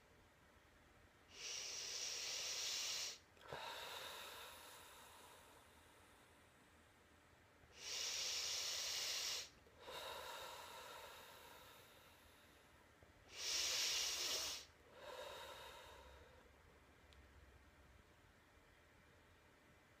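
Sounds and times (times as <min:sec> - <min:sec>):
man breathing deeply: 0:01.3 - 0:06.4, 0:07.8 - 0:16.5.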